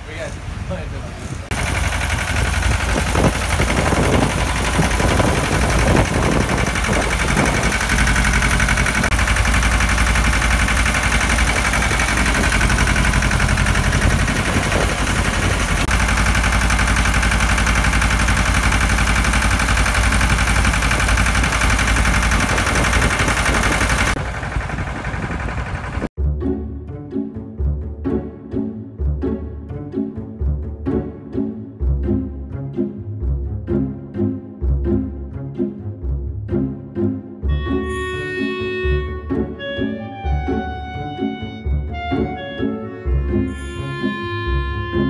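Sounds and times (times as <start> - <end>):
stationary engine rumbling: 0.0 - 45.0
engine knocks: 1.1 - 26.2.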